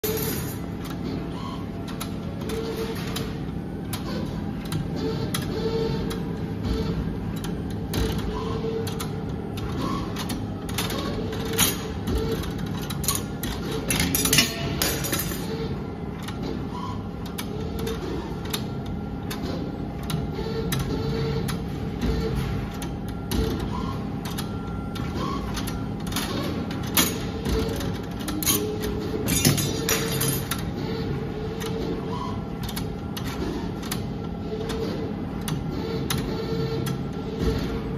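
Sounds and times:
low machine hum: 0:00.0 - 0:37.9
machine motors whirring: 0:00.0 - 0:37.9.

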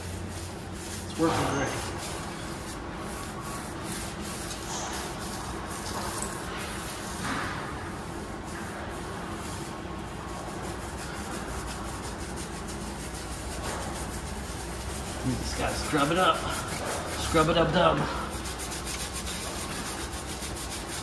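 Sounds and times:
scrubbing rubber tyre: 0:00.0 - 0:07.2, 0:07.9 - 0:21.0.

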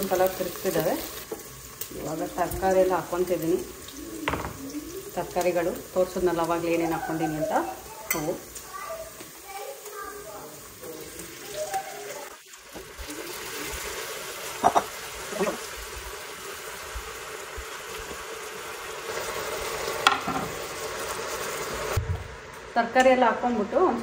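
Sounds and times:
vegetables sizzling in hot oil: 0:00.0 - 0:24.0
spoon knocking against pot: 0:04.2 - 0:04.6.

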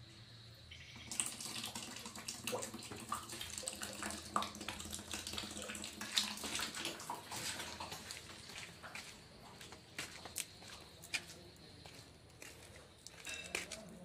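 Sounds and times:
tap water splashing into basin: 0:01.0 - 0:08.6.

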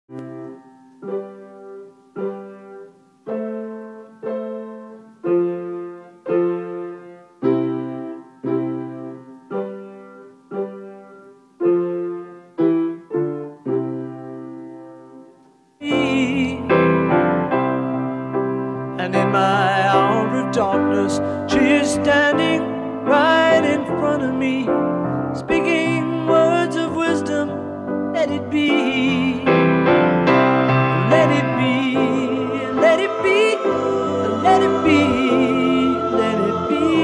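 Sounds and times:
upright piano slow chords: 0:00.1 - 0:37.0
recorded music with singing: 0:15.8 - 0:17.9, 0:18.8 - 0:37.0.

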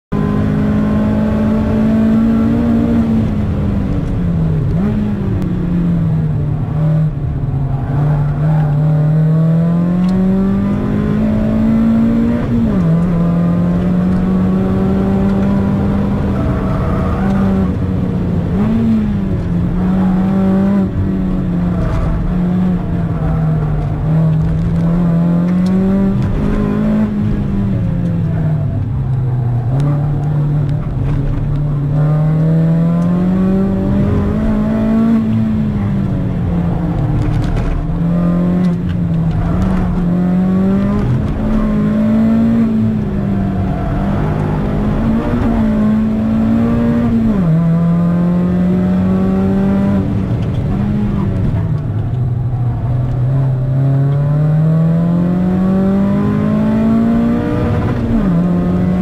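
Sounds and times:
road and tyre rumble: 0:00.0 - 0:59.0
car engine revving: 0:00.1 - 0:59.0.

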